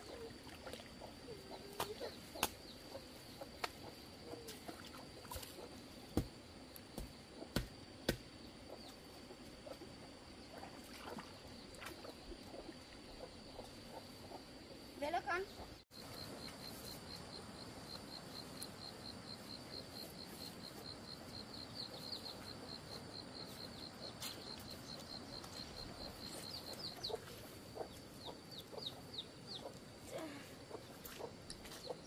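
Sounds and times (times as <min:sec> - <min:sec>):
poultry clucking: 0:26.1 - 0:29.8.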